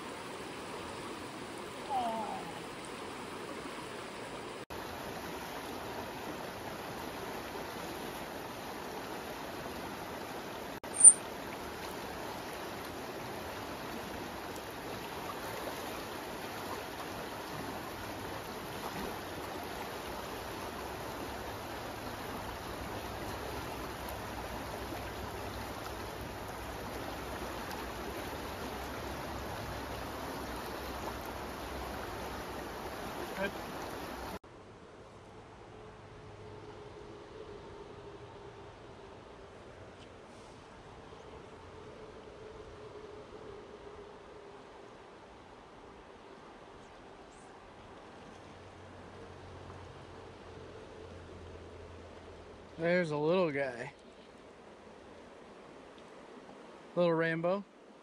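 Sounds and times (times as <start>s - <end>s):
river water rushing: 0.0s - 58.0s.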